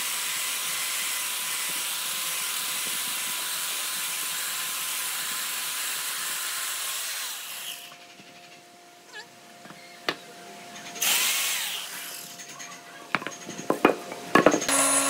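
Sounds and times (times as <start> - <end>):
electric chainsaw cutting log: 0.0 - 8.0, 11.0 - 12.4, 14.3 - 15.0.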